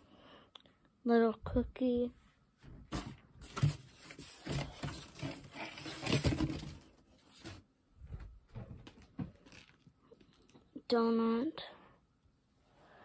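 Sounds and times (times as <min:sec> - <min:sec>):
rustling handling noise: 0:02.6 - 0:10.8.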